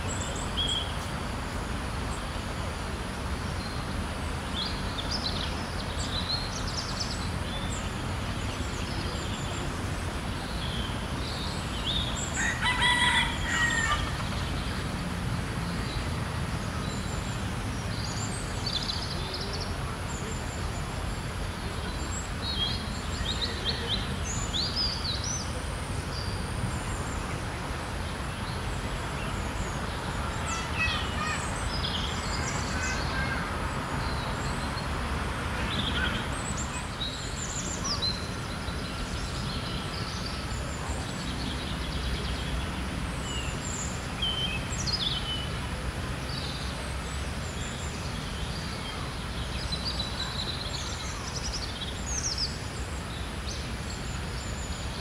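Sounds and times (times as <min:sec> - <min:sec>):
rooster crowing: 0:12.4 - 0:14.2.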